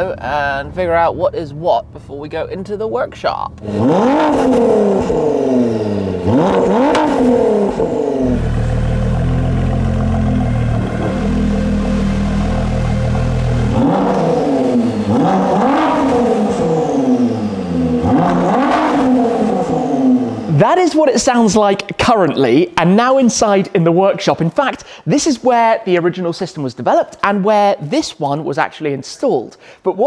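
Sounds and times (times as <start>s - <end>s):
car engine idling: 0.0s - 20.6s
car engine revving: 3.4s - 21.4s.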